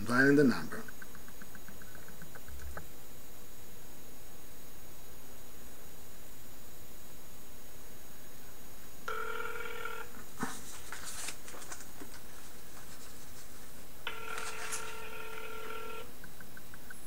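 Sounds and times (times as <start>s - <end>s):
phone ringback tone: 9.1s - 10.1s, 14.1s - 16.1s
clicks and rustles: 10.2s - 13.7s.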